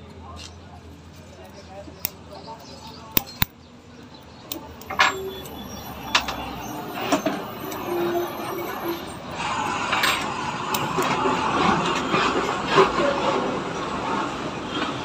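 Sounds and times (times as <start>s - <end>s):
metallic clicks of brake parts: 2.0s - 6.6s.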